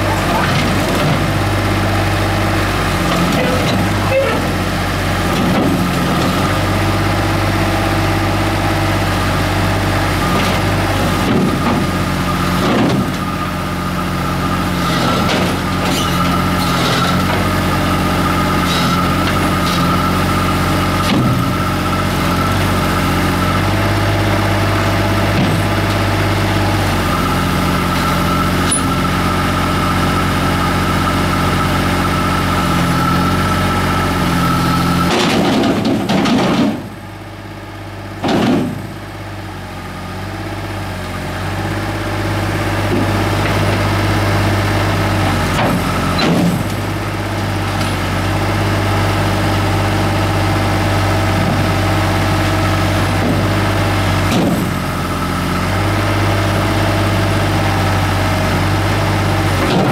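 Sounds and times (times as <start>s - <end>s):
excavator diesel engine running: 0.0s - 59.9s
steel tracks knocking and clanking: 59.6s - 59.9s.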